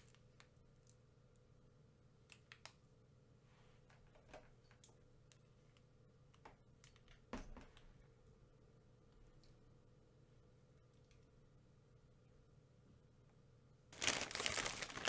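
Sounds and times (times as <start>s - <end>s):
foil wrapper crinkling: 14.0s - 15.0s.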